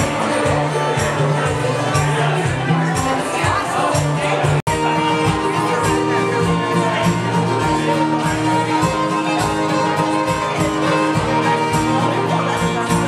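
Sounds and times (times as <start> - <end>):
acoustic guitar: 0.0 - 13.0
fiddle: 0.0 - 13.0.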